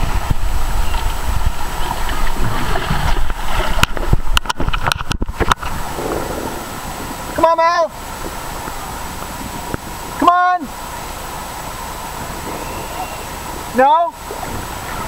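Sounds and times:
water knocking on microphone: 0.0 - 7.3
water rushing and splashing: 0.0 - 15.0.

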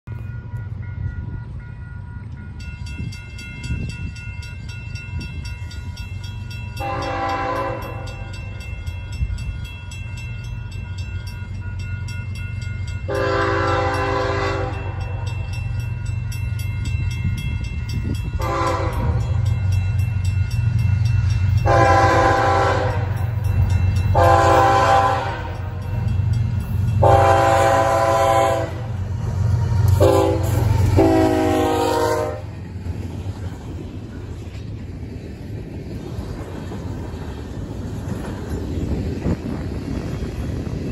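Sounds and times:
low rumble of locomotive engines: 0.0 - 40.9
locomotive air horn blasts: 6.8 - 8.2, 13.1 - 15.0, 18.4 - 19.4, 21.6 - 23.2, 24.1 - 25.7, 27.0 - 32.5.

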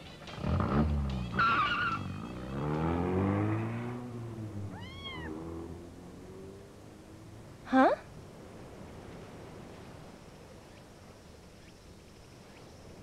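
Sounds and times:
kitten meowing: 4.6 - 5.4.

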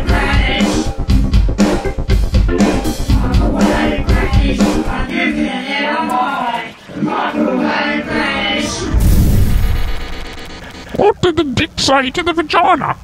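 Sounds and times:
band with drums and bass: 0.0 - 5.0.

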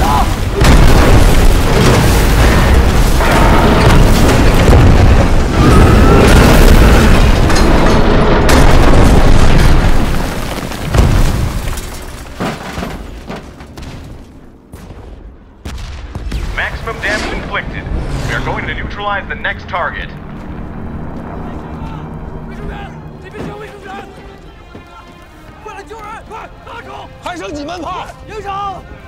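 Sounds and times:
bomb explosions: 0.0 - 12.4, 13.8 - 22.6
deep rumble: 15.8 - 23.4.

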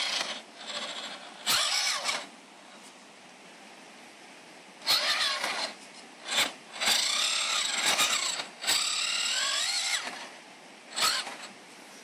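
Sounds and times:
electric motor whining: 0.0 - 2.3, 4.8 - 11.5.

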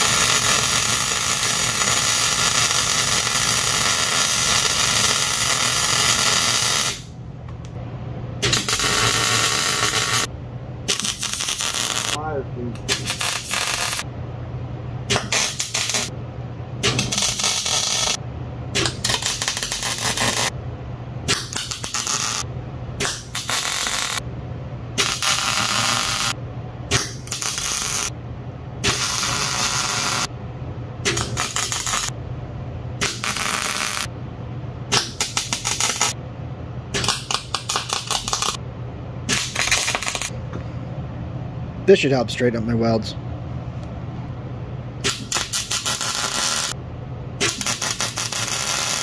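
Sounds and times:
welder arc crackling: 0.0 - 7.1, 8.4 - 10.3, 10.9 - 12.2, 12.8 - 14.1, 15.1 - 16.1, 16.8 - 18.2, 18.8 - 20.6, 21.3 - 24.2, 25.0 - 28.2, 28.8 - 30.3, 31.1 - 32.1, 33.0 - 34.1, 35.1 - 36.2, 37.0 - 38.6, 39.3 - 40.3, 45.1 - 46.8, 47.4 - 49.0
steady low hum: 0.0 - 49.0.

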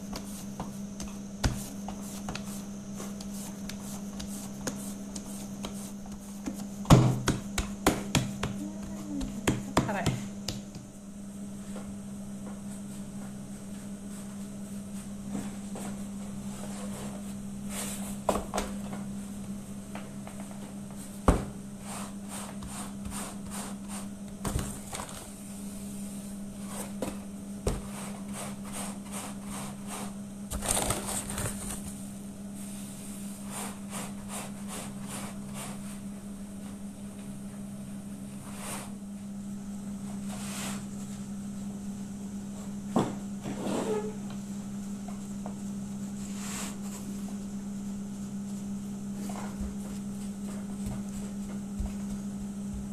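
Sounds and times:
hands patting dough on wood: 0.0 - 10.9, 49.4 - 52.9
low electrical hum: 0.0 - 52.9.

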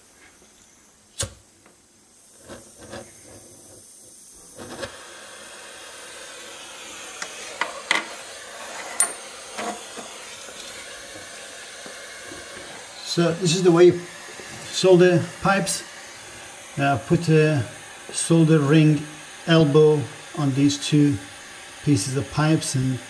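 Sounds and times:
gas flame hissing: 0.0 - 23.0
torch igniter clicks: 1.1 - 1.8, 7.1 - 8.3.

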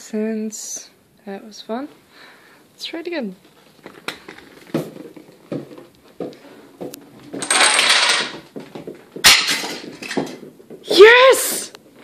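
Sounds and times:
small pieces clattering: 7.2 - 10.5
rattle: 7.4 - 8.4.

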